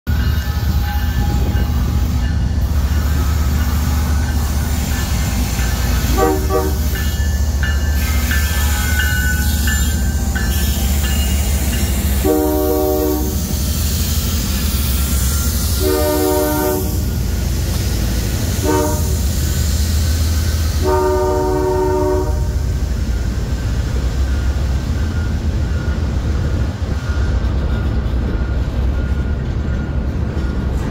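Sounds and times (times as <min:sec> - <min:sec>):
diesel locomotives running past: 0:00.1 - 0:30.9
freight cars rolling on rails: 0:00.1 - 0:30.9
train air horn: 0:06.0 - 0:07.0, 0:12.2 - 0:13.5, 0:15.3 - 0:17.2, 0:18.6 - 0:19.4, 0:20.8 - 0:22.7.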